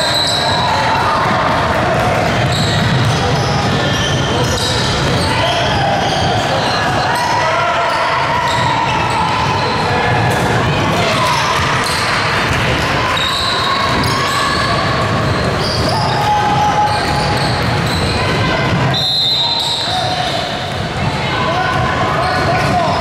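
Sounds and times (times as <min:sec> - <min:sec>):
voices echoing in hall: 0:00.0 - 0:23.0
basketball bouncing on court: 0:01.2 - 0:05.3, 0:11.2 - 0:18.9.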